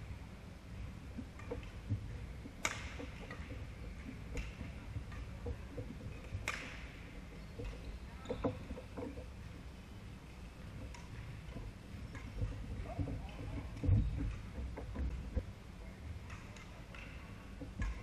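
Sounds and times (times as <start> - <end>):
racket hitting shuttlecock: 2.6 - 3.4, 6.4 - 7.0.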